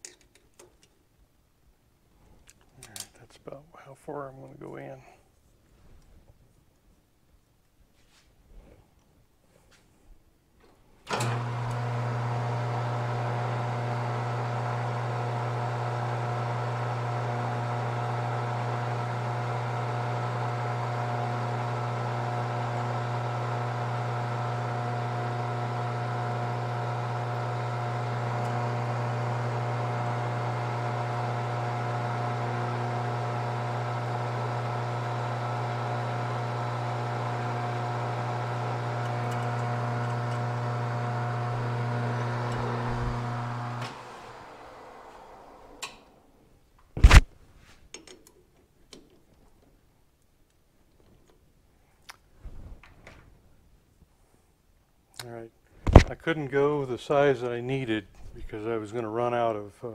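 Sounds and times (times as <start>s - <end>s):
drill bit boring into plastic: 11.1s - 46.0s
metal lathe motor humming: 11.1s - 46.2s.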